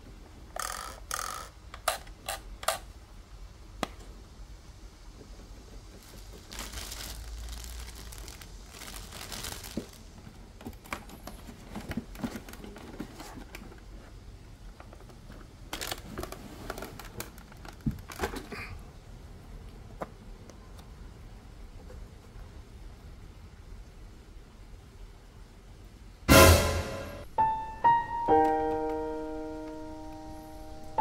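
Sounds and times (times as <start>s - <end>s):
hard plastic parts clicking: 0.6s - 2.9s
plastic packaging crinkling: 6.0s - 13.7s, 15.7s - 18.4s.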